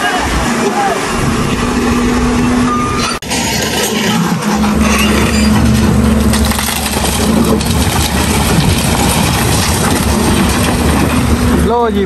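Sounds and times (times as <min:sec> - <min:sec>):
diesel engine running: 0:00.1 - 0:12.0
rubble crunching and scraping: 0:03.1 - 0:12.0.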